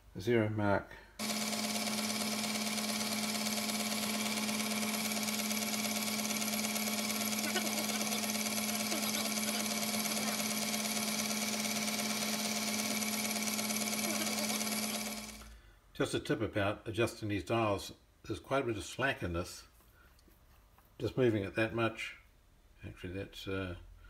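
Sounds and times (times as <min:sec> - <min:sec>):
metal lathe humming: 0:01.2 - 0:15.5.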